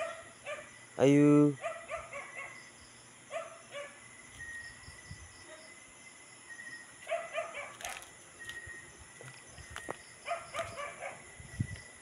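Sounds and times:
dog yelping: 0.0s - 0.7s, 1.6s - 2.6s, 7.0s - 8.1s, 10.2s - 11.2s.

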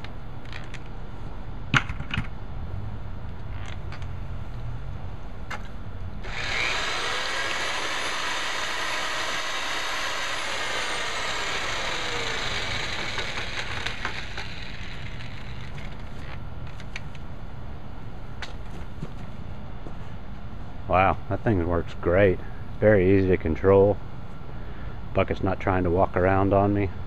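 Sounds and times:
electric mixer motor whine: 6.2s - 15.8s.

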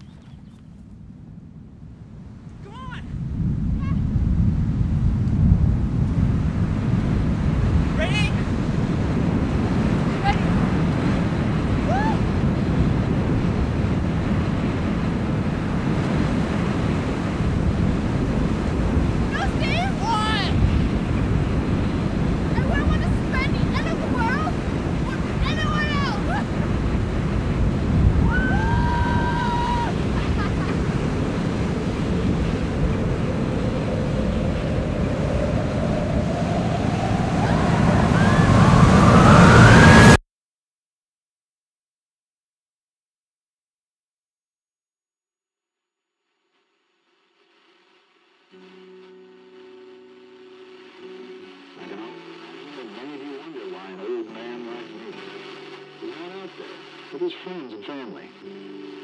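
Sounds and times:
strong wind rushing: 0.0s - 40.2s
rising whine: 8.5s - 40.2s, 47.3s - 59.0s.

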